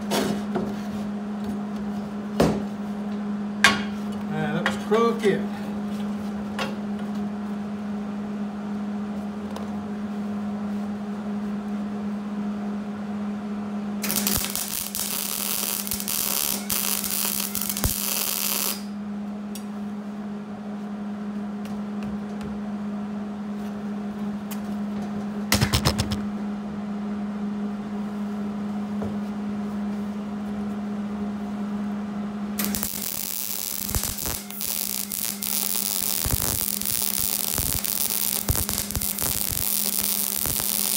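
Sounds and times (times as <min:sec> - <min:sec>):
electrical hum: 0:00.0 - 0:40.9
welding arc crackling: 0:14.0 - 0:18.9, 0:32.6 - 0:40.9.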